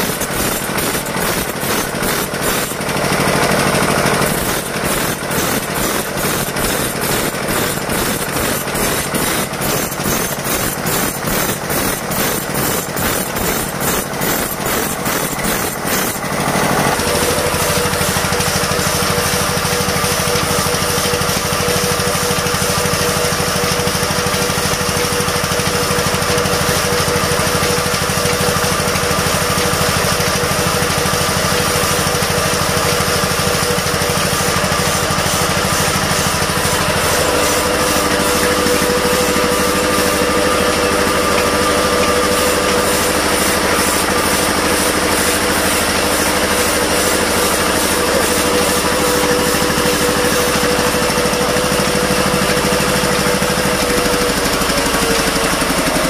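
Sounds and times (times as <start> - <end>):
diesel engine running: 0.0 - 56.0
steady whine: 33.0 - 56.0.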